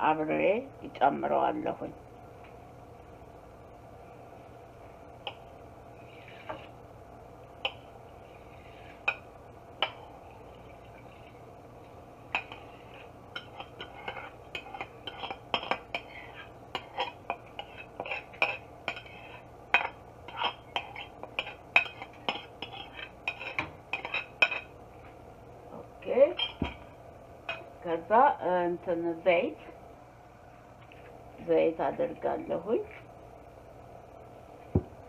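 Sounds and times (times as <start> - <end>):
metal spoon scraping china bowl: 12.4 - 24.7.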